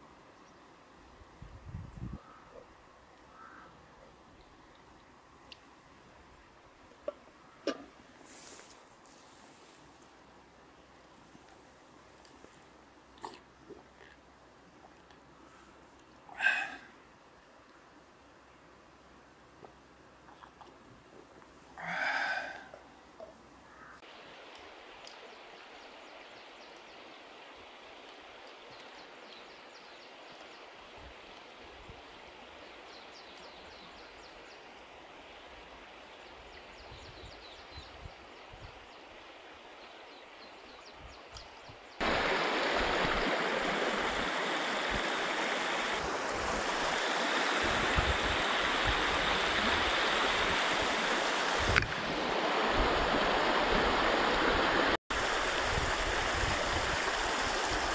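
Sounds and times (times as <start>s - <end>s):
river water flowing over rocks: 10.1s - 33.4s, 42.0s - 57.9s.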